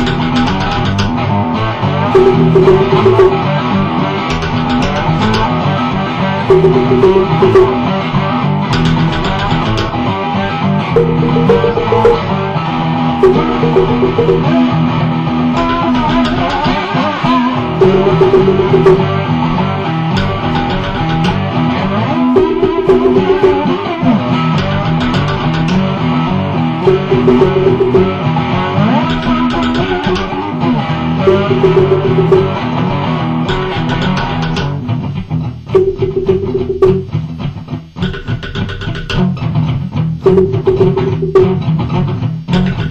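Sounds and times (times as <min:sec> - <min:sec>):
guitar plucking and strumming: 0:00.0 - 0:42.9.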